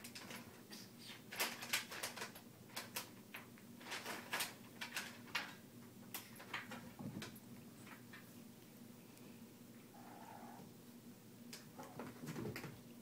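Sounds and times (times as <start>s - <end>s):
rustles crinkles and taps: 0.0s - 0.6s, 1.3s - 8.3s.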